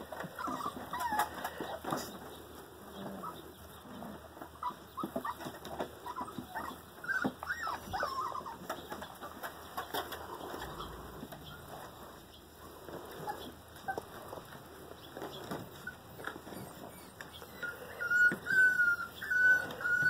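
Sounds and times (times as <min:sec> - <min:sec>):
paws tapping and scuffling: 0:00.0 - 0:20.0
puppies squeaking and whining: 0:00.1 - 0:02.2, 0:02.9 - 0:11.8, 0:13.1 - 0:20.0.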